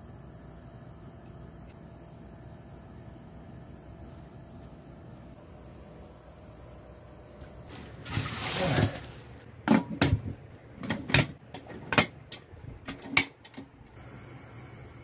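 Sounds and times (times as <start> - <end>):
bucket scraping into pot: 7.8 - 9.4.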